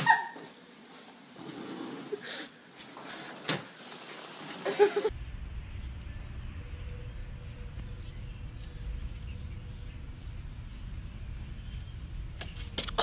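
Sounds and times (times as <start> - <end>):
steady low rumble: 5.1 - 13.0.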